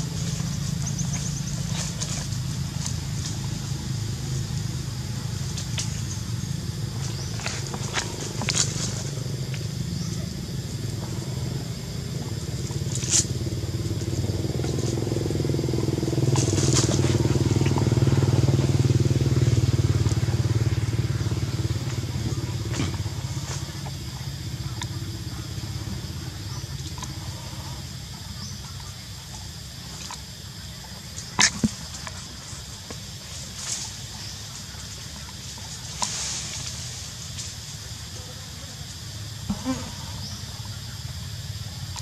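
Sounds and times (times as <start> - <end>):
vehicle engine drone passing: 0.0 - 31.0.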